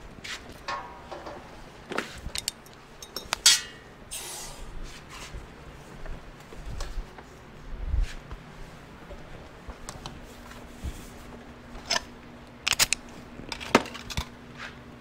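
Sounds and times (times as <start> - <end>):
loud metal clank: 0.7 - 1.6, 3.4 - 3.9
metal tools clinking: 2.3 - 3.9.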